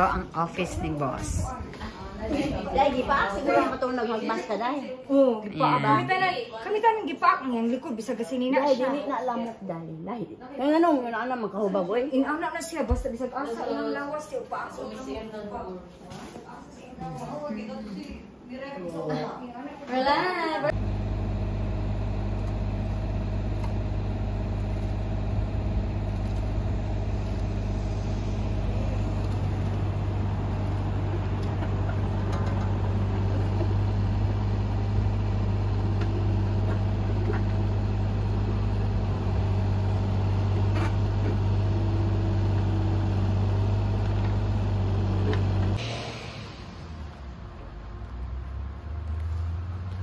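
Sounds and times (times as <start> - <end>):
diesel engine running: 20.7 - 50.0.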